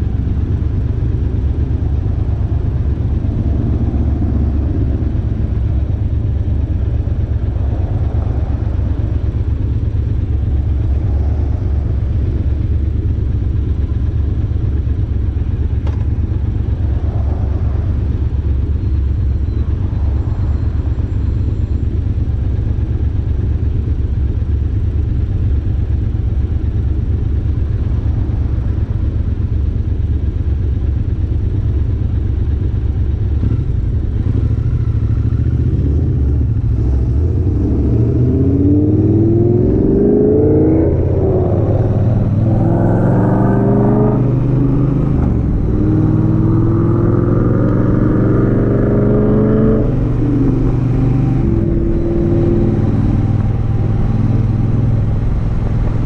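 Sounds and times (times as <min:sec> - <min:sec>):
motorcycle engine idling: 0:00.0 - 0:36.8, 0:51.4 - 0:56.0.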